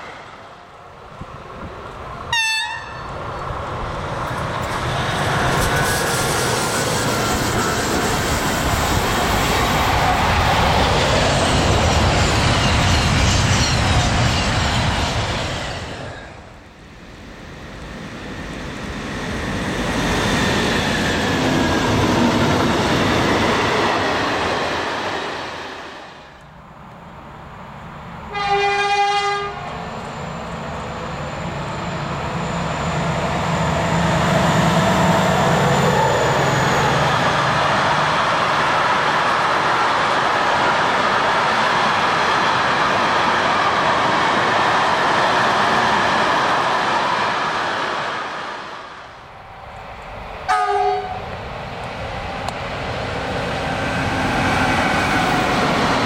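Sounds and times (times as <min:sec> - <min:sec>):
diesel locomotive approaching: 0:00.0 - 0:56.0
train wheel and rail noise: 0:00.0 - 0:56.0
locomotive horn: 0:02.3 - 0:03.1, 0:28.3 - 0:29.7, 0:50.5 - 0:51.2.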